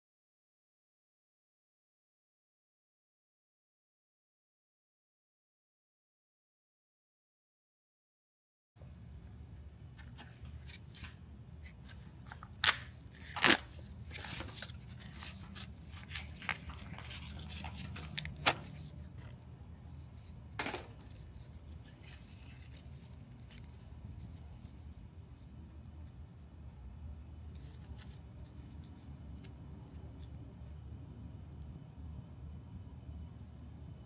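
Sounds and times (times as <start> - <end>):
low steady hum: 8.8 - 34.0
packet tearing and crinkling: 12.2 - 19.4.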